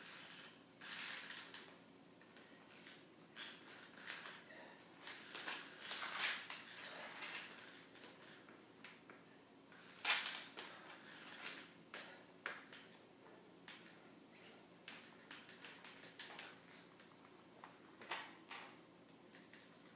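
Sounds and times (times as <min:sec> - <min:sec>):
metal leg braces and crutches rattling: 0:05.0 - 0:08.5.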